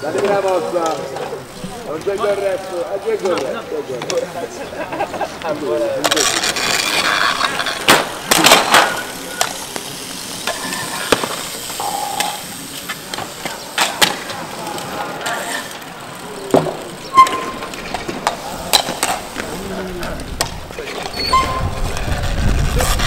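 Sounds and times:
bicycle tyres rolling on asphalt: 0.0s - 23.0s
mallets clattering against bikes: 6.0s - 21.8s.

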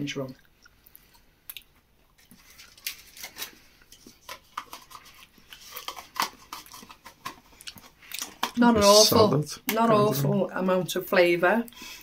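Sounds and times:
person chewing with wet clicks: 0.2s - 3.0s, 3.8s - 8.5s.

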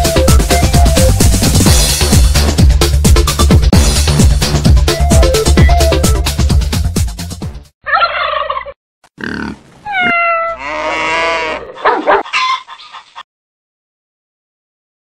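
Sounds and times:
animal and bird calls: 7.9s - 13.2s.

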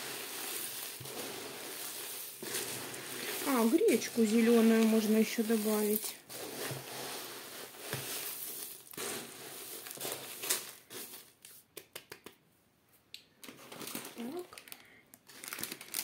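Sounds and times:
hands stirring dry grains: 0.0s - 12.2s.

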